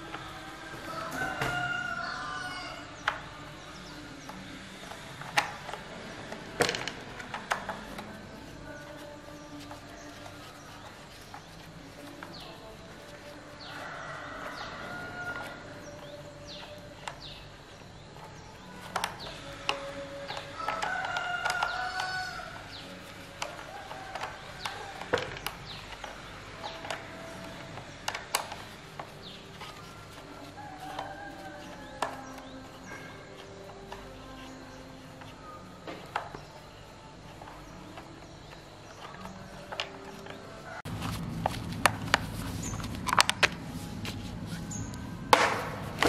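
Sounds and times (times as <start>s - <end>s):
rooster crowing: 0.0s - 4.0s, 12.0s - 17.4s, 18.6s - 27.9s, 28.8s - 35.7s.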